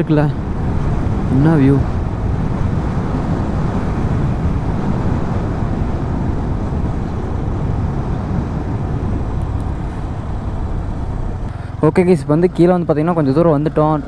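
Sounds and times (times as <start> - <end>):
wind rush over microphone: 0.0 - 11.6
motorcycle engine running: 2.0 - 14.0.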